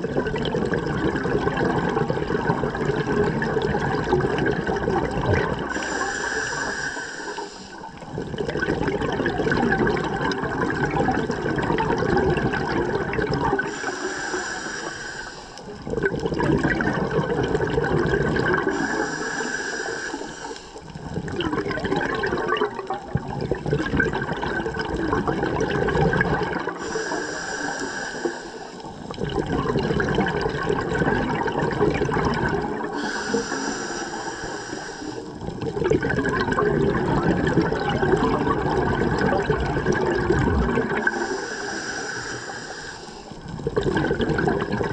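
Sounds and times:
exhaled bubbles rushing: 0:00.0 - 0:14.4, 0:15.6 - 0:42.4, 0:43.2 - 0:44.9
regulator inhalation hiss: 0:05.7 - 0:08.0, 0:13.7 - 0:15.8, 0:18.7 - 0:21.0, 0:26.8 - 0:29.1, 0:32.9 - 0:35.4, 0:41.0 - 0:43.5.

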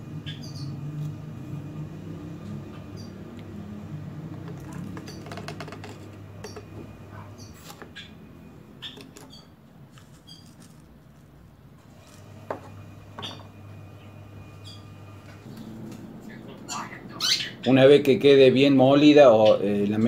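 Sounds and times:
steady low hum: 0:00.0 - 0:20.0
small birds chirping: 0:00.1 - 0:01.1, 0:02.7 - 0:03.6, 0:04.3 - 0:10.9, 0:13.2 - 0:20.0.

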